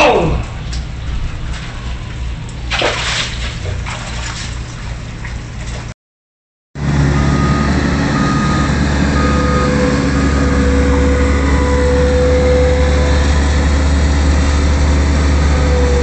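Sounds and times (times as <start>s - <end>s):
low rumble: 0.0s - 5.6s
vehicle reversing beeper: 6.8s - 14.3s.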